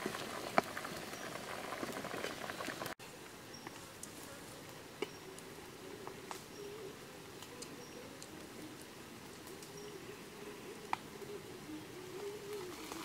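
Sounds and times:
wood fire crackling and popping: 0:00.0 - 0:03.0.

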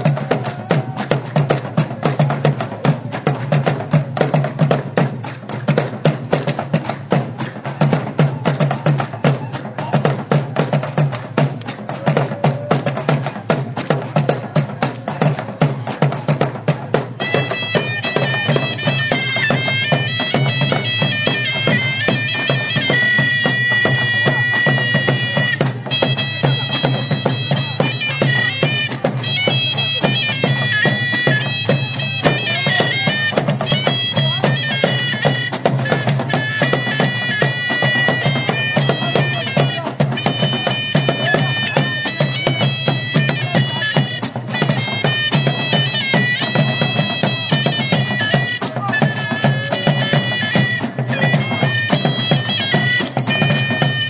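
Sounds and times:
drums beating fast rhythm: 0:00.0 - 0:54.0
high-pitched wind instrument melody: 0:17.2 - 0:54.0.

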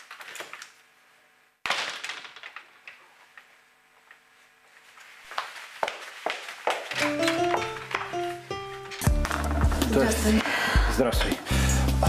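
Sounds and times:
footsteps on hard floor: 0:04.6 - 0:10.2.

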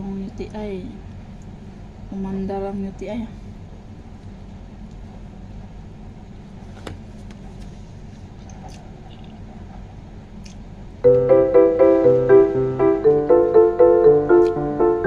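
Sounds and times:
loud piano music: 0:11.0 - 0:15.0.

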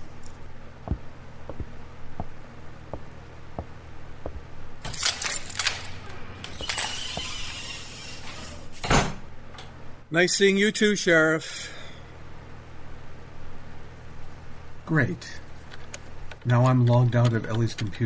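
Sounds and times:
footsteps walking away: 0:00.8 - 0:05.8
door opening with rattle: 0:04.8 - 0:09.2.

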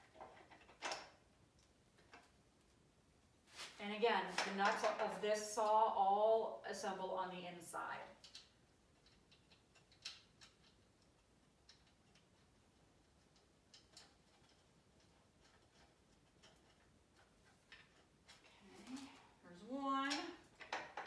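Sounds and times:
metal clicks of bolts and nuts: 0:08.2 - 0:18.4.

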